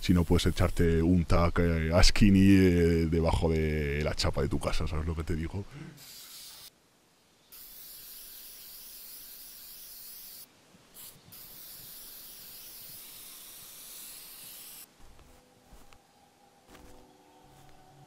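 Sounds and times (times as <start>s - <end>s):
spray paint can hissing: 0.0s - 1.0s, 6.0s - 6.7s, 7.5s - 14.9s.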